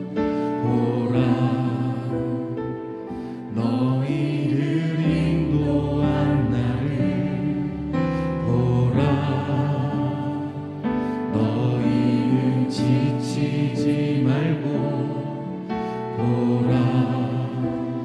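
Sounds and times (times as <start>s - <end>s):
man singing: 3.6s - 15.6s.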